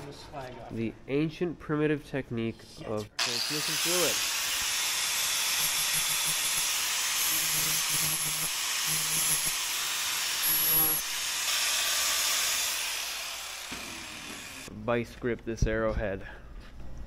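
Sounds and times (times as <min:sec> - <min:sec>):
angle grinder grinding metal: 0:03.2 - 0:14.7.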